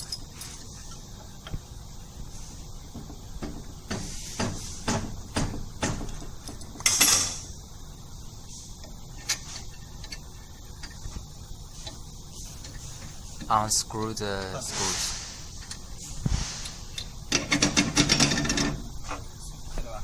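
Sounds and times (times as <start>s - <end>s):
metal scraping: 14.6s - 18.8s.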